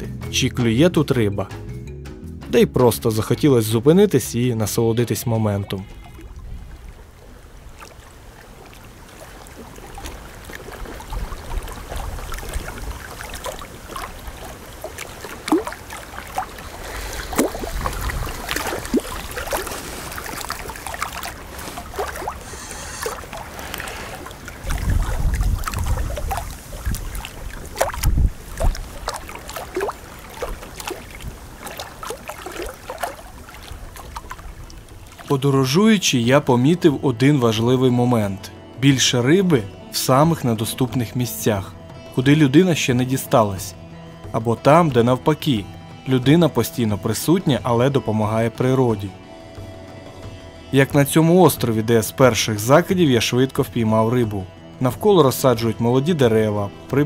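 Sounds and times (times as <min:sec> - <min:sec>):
river water lapping and splashing: 0:05.4 - 0:57.0
wind rumbling on microphone: 0:06.1 - 0:35.2.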